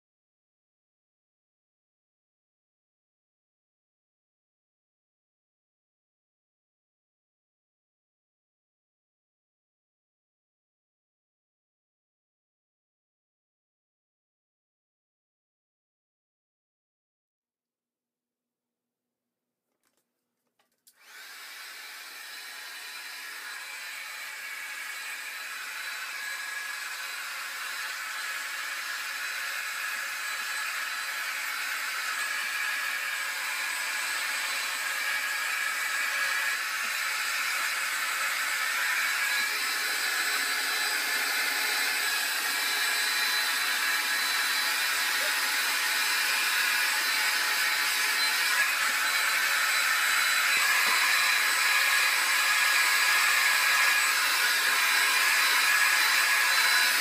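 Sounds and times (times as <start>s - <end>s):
hair dryer running: 20.9s - 57.0s.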